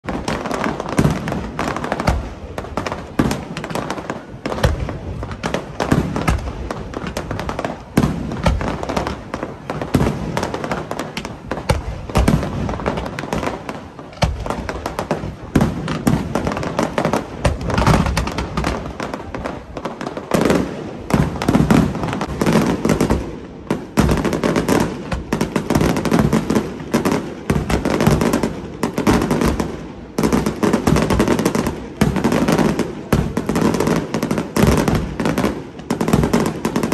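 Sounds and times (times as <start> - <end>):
firework shell bursts and crackling: 0.0 - 36.9.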